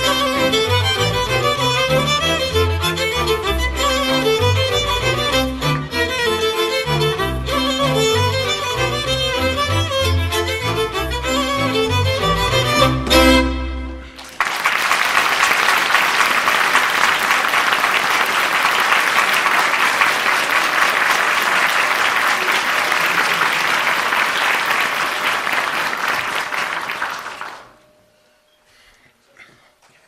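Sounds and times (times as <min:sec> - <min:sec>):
audience applauding: 0:14.2 - 0:27.8.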